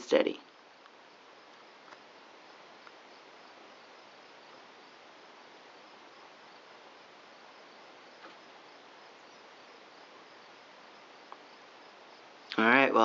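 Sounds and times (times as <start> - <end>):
faint ticks: 0.4 - 2.1, 2.8 - 3.3, 11.2 - 11.6.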